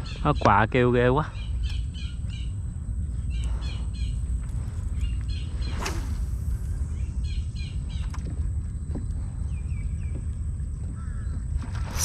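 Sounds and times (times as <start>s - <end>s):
steady low rumble: 0.0s - 12.0s
sharp swish: 5.6s - 6.9s
crows calling: 10.8s - 11.9s.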